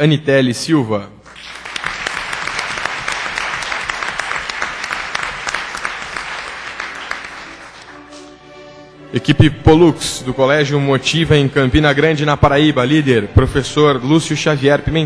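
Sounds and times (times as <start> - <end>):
audience applauding: 1.2 - 8.3.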